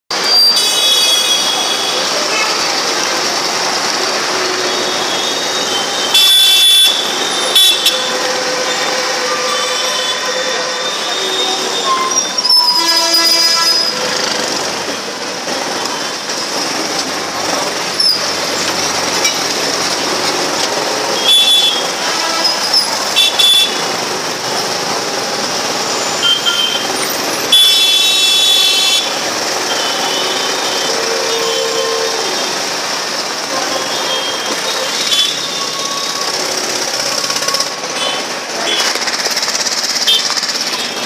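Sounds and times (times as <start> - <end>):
busy street traffic: 0.1 - 41.0
vehicle horns honking: 0.2 - 3.2, 4.0 - 16.6, 20.8 - 24.0, 25.8 - 32.8, 33.5 - 39.2, 40.0 - 41.0.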